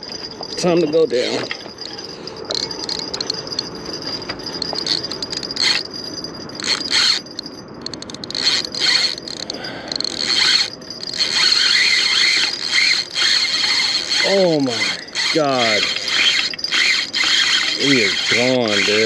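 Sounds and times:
fishing reel drag screaming: 4.4 - 6.0, 6.6 - 19.0.

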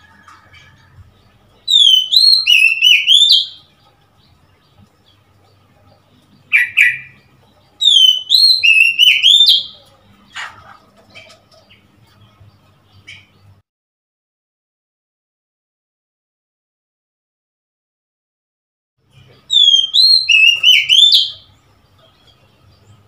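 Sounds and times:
bird singing whistled notes: 0.0 - 4.7, 5.8 - 9.9, 19.2 - 23.0.

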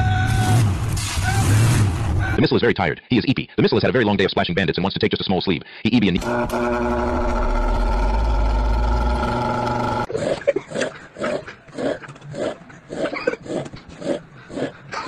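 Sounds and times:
deep rumbling drone: 6.2 - 10.1
rapid snoring: 6.9 - 15.0.

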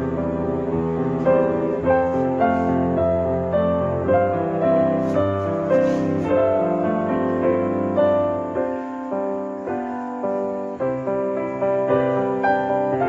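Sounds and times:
slow piano music: 0.0 - 13.0.

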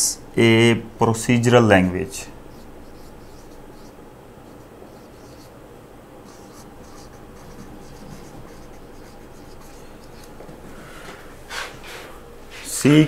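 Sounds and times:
marker pen writing on whiteboard: 2.5 - 5.6, 6.2 - 11.8.

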